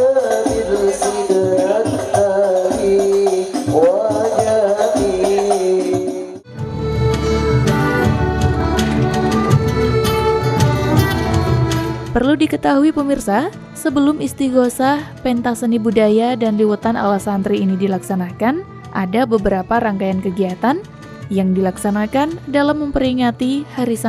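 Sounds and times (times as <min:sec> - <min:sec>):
male group devotional singing: 0:00.0 - 0:06.3
music with heavy bass: 0:00.0 - 0:12.2
frame drums beating: 0:00.0 - 0:13.2.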